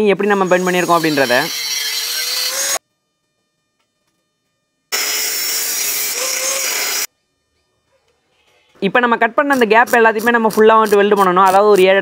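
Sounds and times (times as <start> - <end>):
angle grinder cutting iron pipe: 0.4 - 2.8, 4.9 - 7.1.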